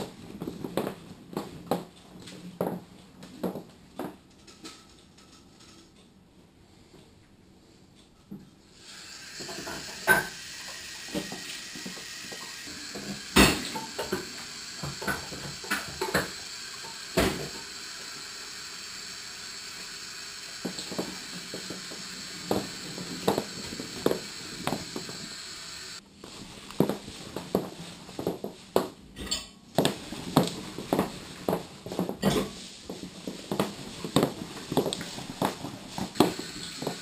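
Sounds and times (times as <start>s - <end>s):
tap running: 8.8s - 26.0s, 33.0s - 37.0s
dishes and cutlery clinking: 29.2s - 29.6s.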